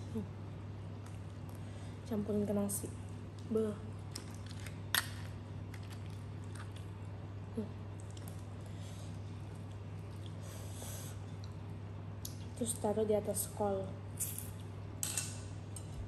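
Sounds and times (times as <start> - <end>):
steady low hum: 0.0 - 16.0
faint chewing: 8.0 - 10.4.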